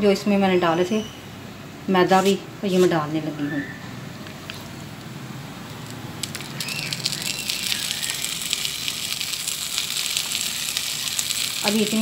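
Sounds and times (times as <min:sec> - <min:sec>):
food sizzling in a frying pan: 0:06.2 - 0:12.0.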